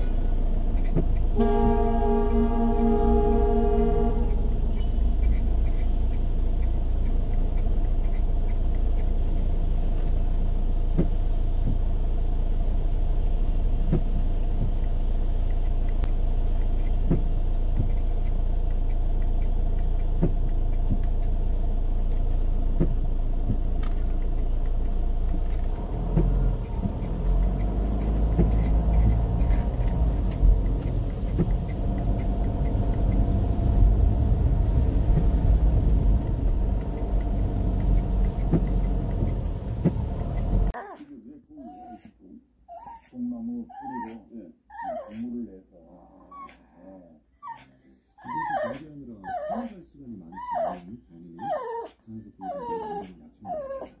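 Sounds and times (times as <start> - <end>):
car engine rumble: 0.0 - 41.4
tyres on the road: 0.0 - 46.5.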